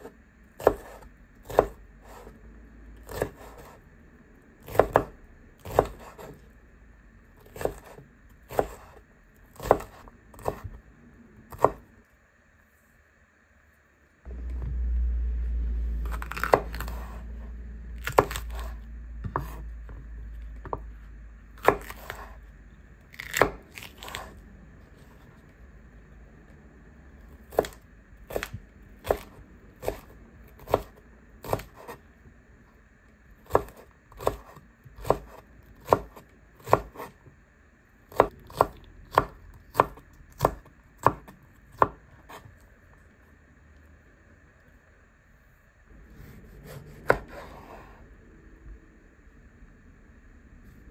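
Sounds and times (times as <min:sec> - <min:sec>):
knife chopping on wooden board: 0:00.6 - 0:02.3, 0:03.0 - 0:03.8, 0:04.6 - 0:06.4, 0:07.4 - 0:09.0, 0:09.6 - 0:10.8, 0:11.5 - 0:11.8, 0:18.0 - 0:20.0, 0:21.6 - 0:22.4, 0:23.2 - 0:24.3, 0:27.5 - 0:32.0, 0:33.5 - 0:37.2, 0:38.1 - 0:42.5, 0:46.2 - 0:47.8
low rumble: 0:14.3 - 0:21.6, 0:47.5 - 0:50.9.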